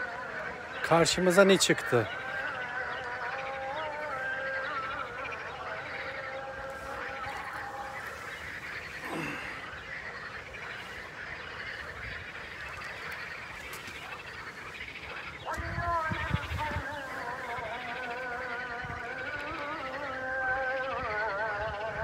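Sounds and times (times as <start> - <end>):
faint chanted call to prayer: 0.0 - 9.8, 15.3 - 22.0
frogs croaking: 0.0 - 22.0.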